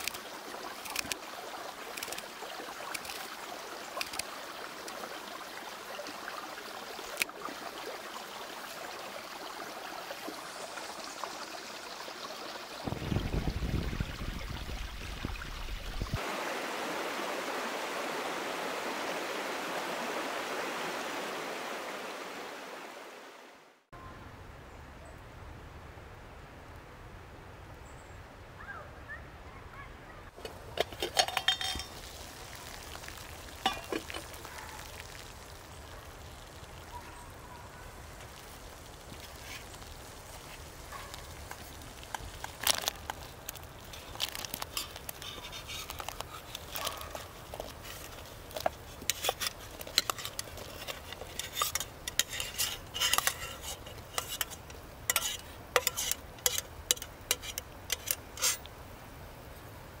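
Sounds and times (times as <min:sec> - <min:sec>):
water boiling in a pot: 0:00.0 - 0:16.3, 0:30.4 - 1:00.0
metal pots clinking: 0:30.4 - 0:32.3, 0:33.6 - 0:34.4, 0:43.8 - 0:58.7.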